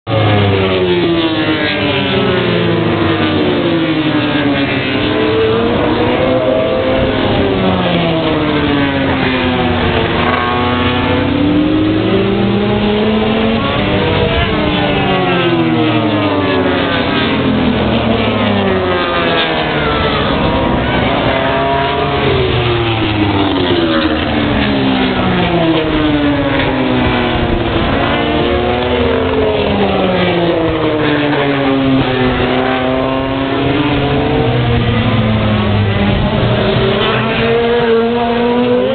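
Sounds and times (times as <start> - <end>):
racing motorcycle engines revving: 0.0 - 38.9.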